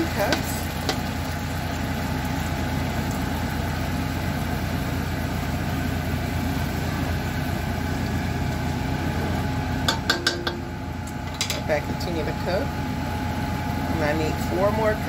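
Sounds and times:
broth bubbling in a pot: 0:00.0 - 0:15.0.

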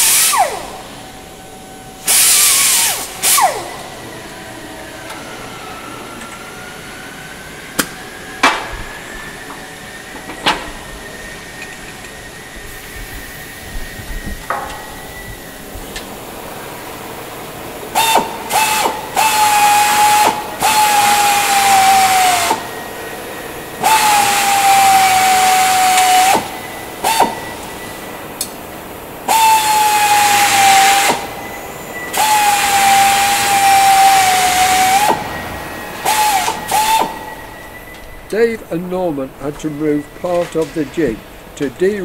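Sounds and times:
air hiss: 0:00.0 - 0:00.9, 0:02.0 - 0:03.8, 0:17.9 - 0:28.1, 0:29.2 - 0:31.5, 0:32.1 - 0:40.0
air drill whining: 0:00.0 - 0:40.4.

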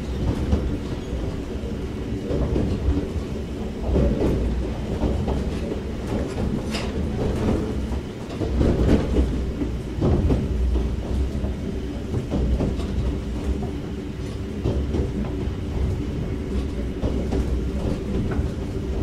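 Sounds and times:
railcar motor and gear hum: 0:00.0 - 0:19.0
train wheels rumbling: 0:00.0 - 0:19.0
knocks from rails: 0:03.8 - 0:13.8.

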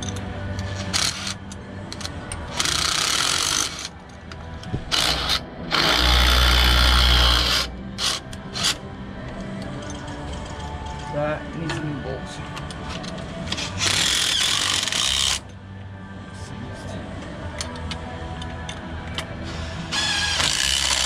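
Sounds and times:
cordless drill driving screws: 0:13.8 - 0:15.4, 0:19.9 - 0:21.0.

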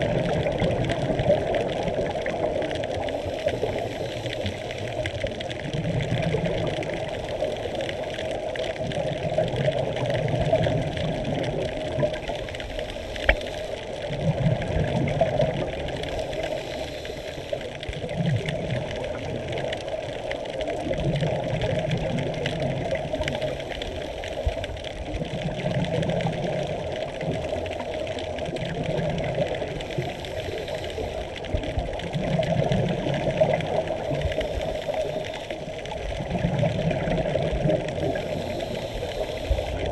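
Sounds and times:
exhaled bubbles underwater: 0:00.0 - 0:39.9
regulator hiss: 0:16.1 - 0:17.7, 0:29.9 - 0:31.4, 0:34.0 - 0:35.7, 0:38.1 - 0:39.9.

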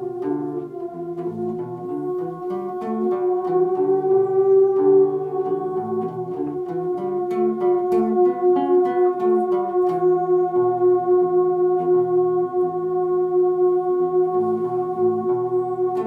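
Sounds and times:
guitar picking: 0:00.0 - 0:16.0
theremin holding a note: 0:00.0 - 0:16.0.

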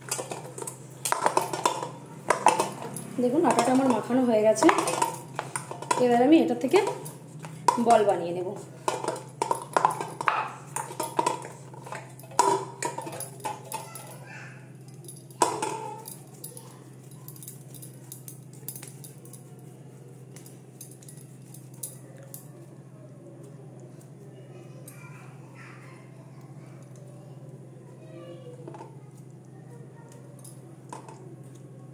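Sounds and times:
hands kneading dough: 0:00.0 - 0:14.7, 0:15.3 - 0:31.9
metal bowl knocking on counter: 0:00.1 - 0:07.1, 0:07.7 - 0:08.2, 0:08.8 - 0:13.8.

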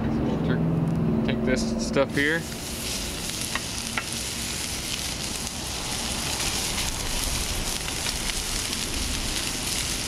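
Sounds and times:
bacon sizzling in a pan: 0:02.1 - 0:10.0.

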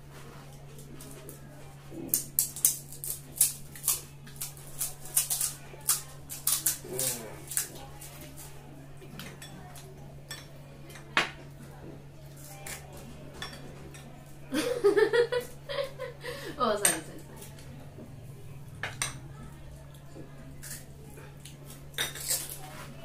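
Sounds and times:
fried shells cracking: 0:02.0 - 0:08.6.

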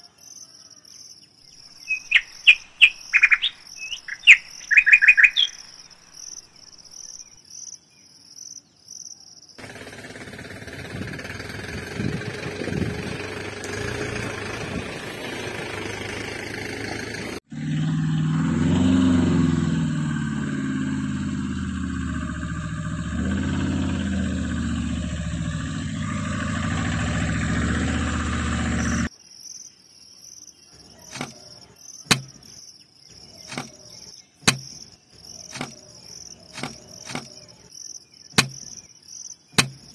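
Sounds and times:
insects chirping: 0:00.0 - 0:10.3, 0:19.7 - 0:39.9
vehicle engine running: 0:09.6 - 0:29.1, 0:33.2 - 0:37.7, 0:38.4 - 0:38.8, 0:39.6 - 0:39.9.

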